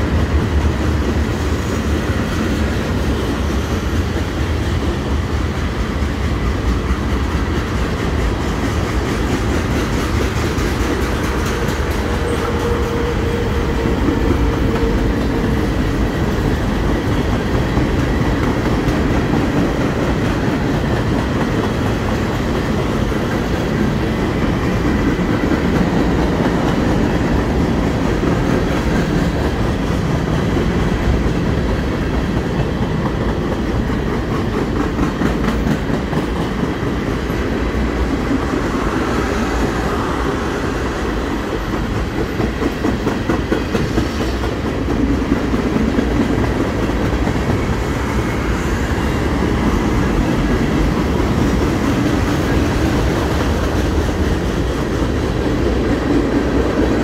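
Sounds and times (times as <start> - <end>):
freight train wheels rumbling on rails: 0.0 - 57.0
clickety-clack rattle: 5.5 - 15.6, 16.7 - 37.4, 41.5 - 48.0.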